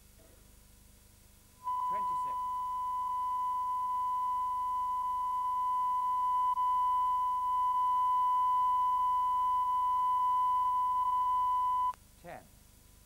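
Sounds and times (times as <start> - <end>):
steady test tone: 1.6 - 12.0.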